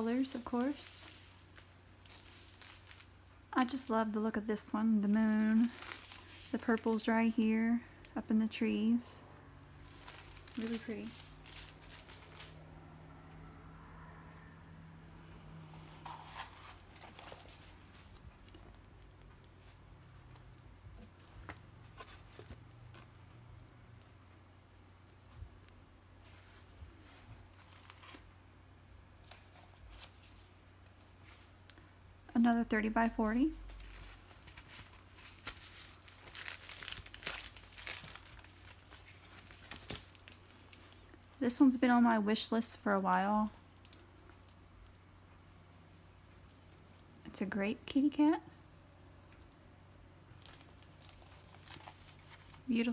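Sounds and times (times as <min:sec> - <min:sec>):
canvas and plastic film crinkling: 0:00.0 - 0:12.7, 0:15.7 - 0:24.1, 0:26.2 - 0:28.3, 0:29.2 - 0:31.8, 0:32.4 - 0:45.0, 0:50.3 - 0:52.9
small crackles and clicks: 0:16.4 - 0:24.2, 0:33.6 - 0:41.7, 0:42.7 - 0:45.0, 0:49.3 - 0:49.6, 0:50.3 - 0:52.7.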